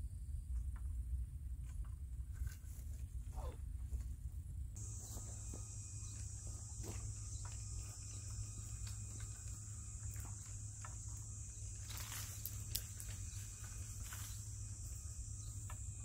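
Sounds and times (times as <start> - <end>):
crickets trilling: 4.8 - 16.0.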